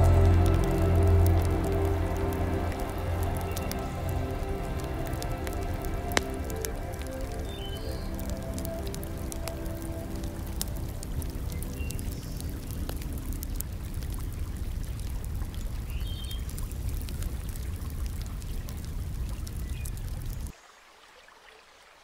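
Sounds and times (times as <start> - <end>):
faint hiss: 0.0 - 16.9
water rushing: 0.0 - 19.5
water ticks and drips: 0.0 - 22.0.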